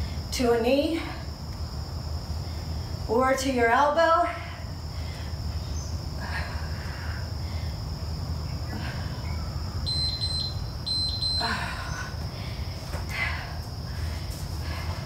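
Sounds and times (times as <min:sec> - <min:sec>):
insect chirring: 0:04.5 - 0:14.3
interval timer short high beeps: 0:09.9 - 0:11.5.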